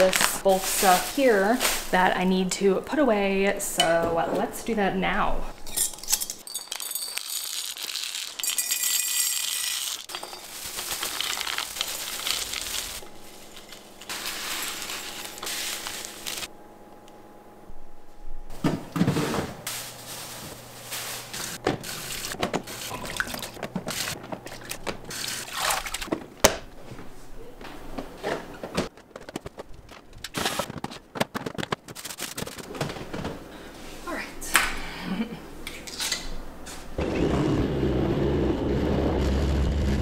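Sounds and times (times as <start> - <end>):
glass clinking: 5.7 - 7.7, 8.4 - 10.6
water running in sink: 21.9 - 26.1.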